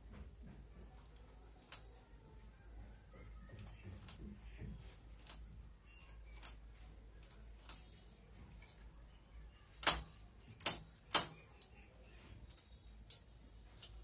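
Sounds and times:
metal tool clicking on knitting needles: 0:09.8 - 0:11.8.

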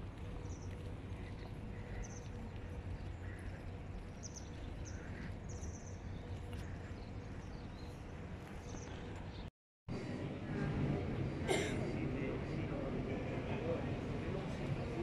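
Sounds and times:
footsteps on asphalt: 0:00.0 - 0:09.4
small birds chirping: 0:00.0 - 0:09.5
low outdoor rumble: 0:00.0 - 0:15.0.

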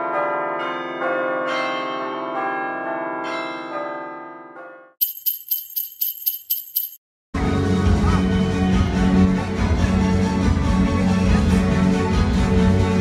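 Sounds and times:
jingle bells shaken: 0:05.0 - 0:07.0.

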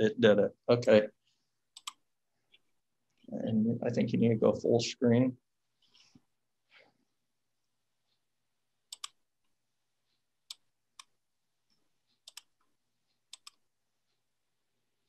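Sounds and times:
computer mouse clicks: 0:01.7 - 0:02.6, 0:08.9 - 0:09.2, 0:12.1 - 0:13.6.

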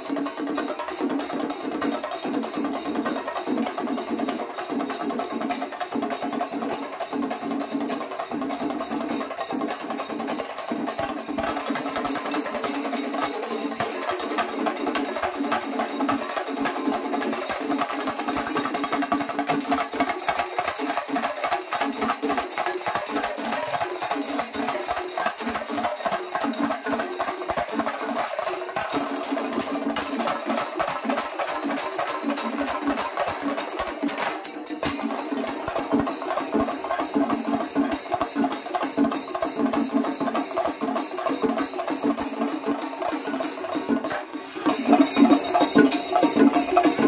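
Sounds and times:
drums beaten fast with sticks: 0:00.0 - 0:47.0
hand cymbals: 0:00.0 - 0:47.0.

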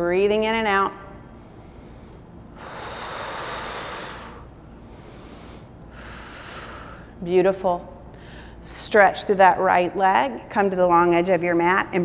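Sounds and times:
woman breathing through the nose: 0:01.3 - 0:07.2, 0:08.1 - 0:08.7.

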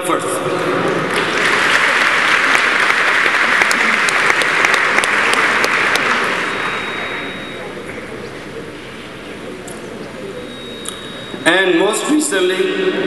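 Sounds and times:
audience applauding: 0:00.8 - 0:08.0.

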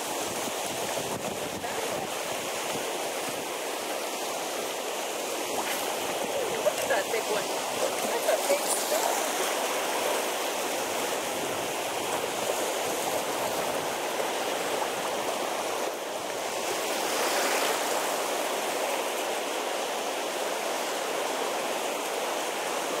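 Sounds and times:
water lapping on pebble shore: 0:00.0 - 0:15.7.

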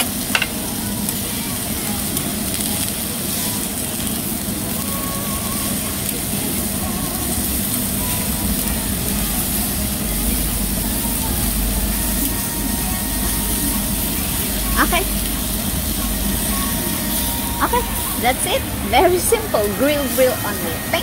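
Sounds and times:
beef sizzling on grill: 0:00.0 - 0:21.0
low rumble: 0:08.4 - 0:21.0.

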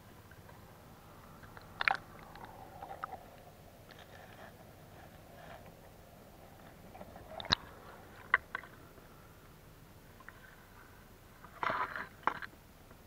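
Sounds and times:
water splash: 0:07.3 - 0:07.7.

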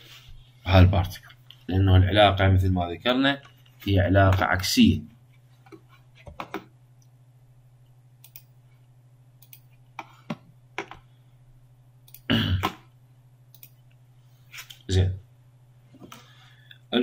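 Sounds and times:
low electrical hum: 0:00.0 - 0:17.0
computer mouse clicks: 0:08.2 - 0:08.5, 0:09.4 - 0:10.1, 0:12.1 - 0:12.3, 0:13.5 - 0:13.9.

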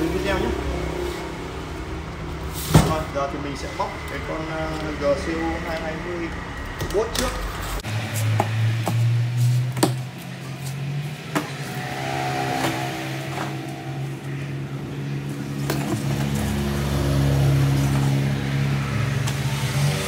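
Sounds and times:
steady low drone: 0:10.8 - 0:19.2.

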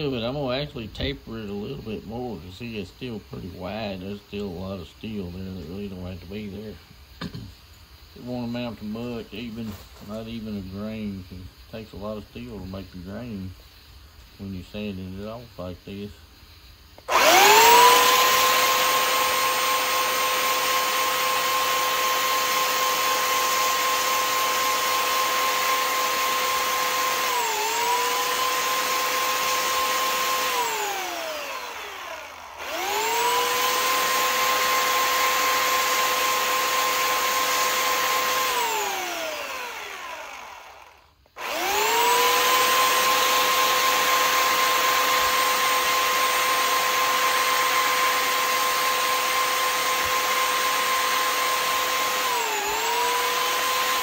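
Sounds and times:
electric sander whining: 0:17.0 - 0:54.0.

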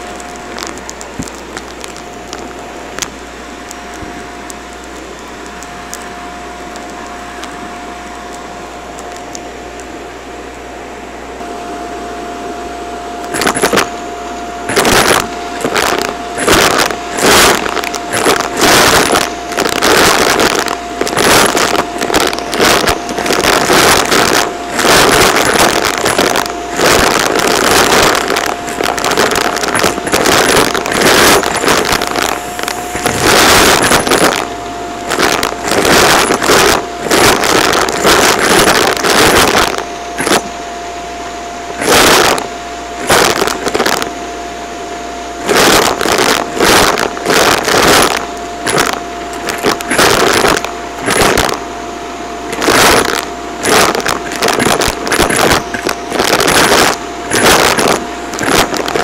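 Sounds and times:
vacuum cleaner motor whine: 0:00.0 - 0:59.0.

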